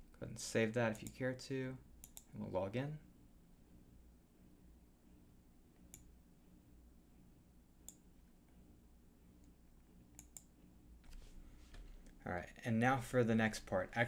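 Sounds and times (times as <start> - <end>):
faint room hum: 0.0 - 14.0
computer mouse clicks: 2.0 - 2.3, 5.8 - 6.1, 7.8 - 8.0, 9.4 - 11.2.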